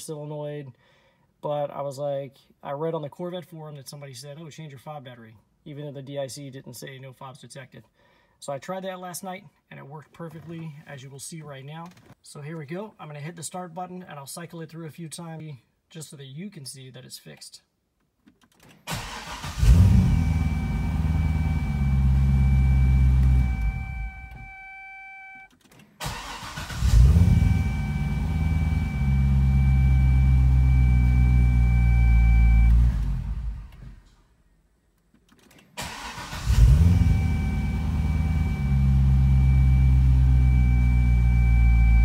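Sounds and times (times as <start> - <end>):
car engine starting and idling: 18.9 - 24.6, 25.7 - 34.2, 35.2 - 42.0
steady high tone: 20.0 - 25.5, 37.0 - 42.0.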